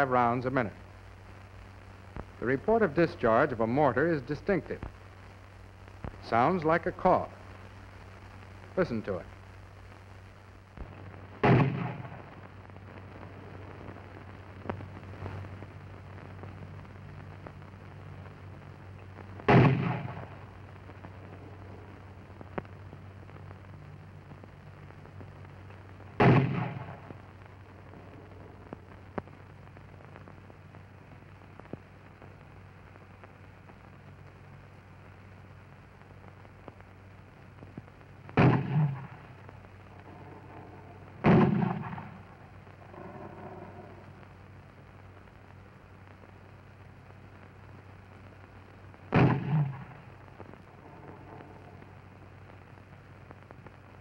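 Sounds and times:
steady low hum: 0.0 - 54.0
mortar firing: 10.8 - 12.3, 19.4 - 20.5, 26.2 - 27.2, 38.3 - 39.4, 40.2 - 42.4, 49.1 - 50.1.

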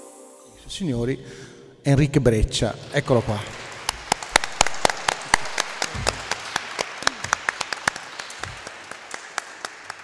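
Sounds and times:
audience applause: 2.9 - 10.0.

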